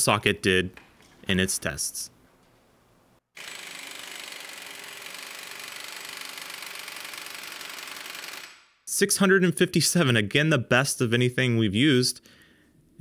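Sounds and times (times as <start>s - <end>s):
air impact wrench hammering: 3.4s - 8.8s.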